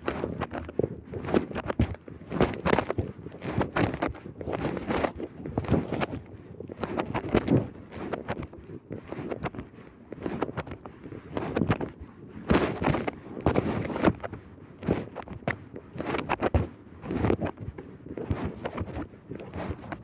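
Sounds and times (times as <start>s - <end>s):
cloth rubbing and rustling: 16.0s - 20.0s.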